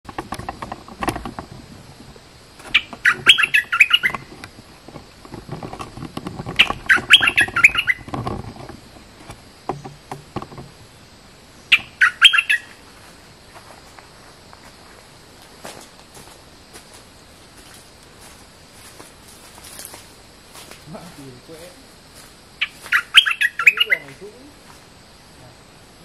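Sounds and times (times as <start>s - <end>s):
bird warbling song: 2.7s - 4.4s, 6.5s - 8.1s, 11.6s - 12.8s, 22.6s - 24.4s
soft low bird calls: 2.7s - 4.4s, 6.5s - 8.1s, 22.6s - 24.5s.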